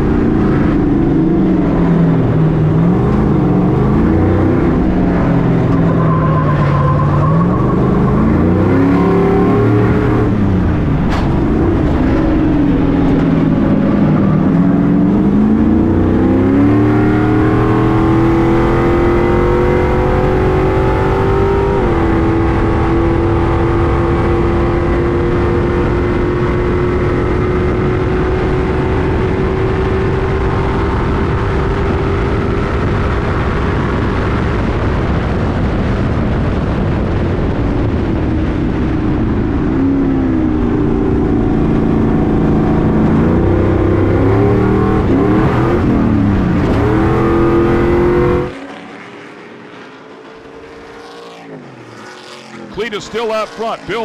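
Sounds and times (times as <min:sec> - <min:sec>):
distant trucks: 0:00.0 - 0:17.0, 0:48.5 - 0:54.0
truck engine revving hard: 0:00.0 - 0:34.4, 0:39.6 - 0:49.4, 0:50.7 - 0:54.0.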